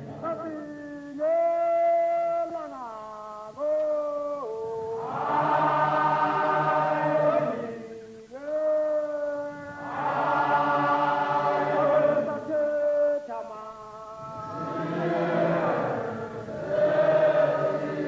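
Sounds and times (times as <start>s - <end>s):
male chorus chanting: 3.6s - 18.0s.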